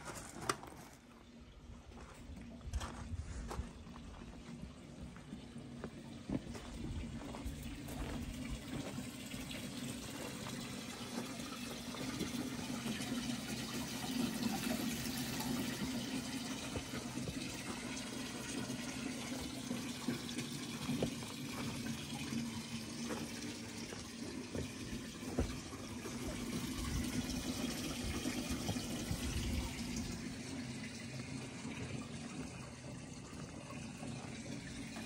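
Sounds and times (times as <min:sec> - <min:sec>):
low steady hum: 0:00.0 - 0:35.0
water splashing from hose: 0:07.9 - 0:35.0.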